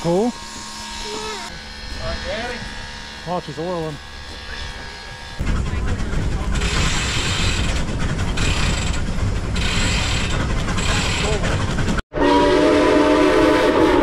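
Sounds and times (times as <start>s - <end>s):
locomotive steam rushing: 4.6s - 14.0s
steam whistle chord: 12.1s - 14.0s.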